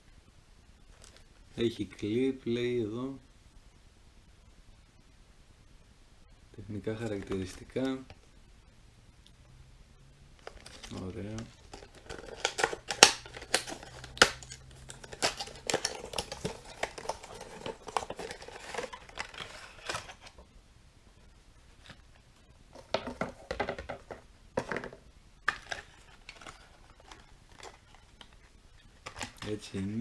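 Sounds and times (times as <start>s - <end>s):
cardboard box being opened: 11.7s - 20.4s.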